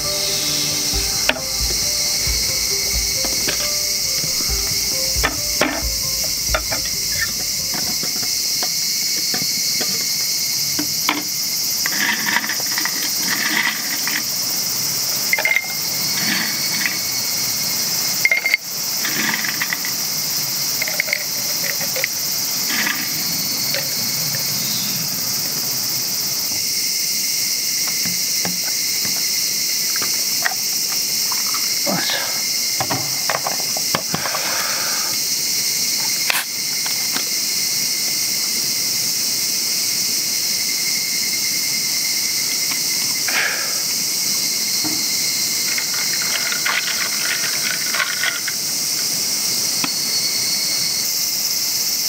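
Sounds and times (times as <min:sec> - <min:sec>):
bottles being handled: 0:00.0 - 0:08.7
insects chirring: 0:00.0 - 0:52.0.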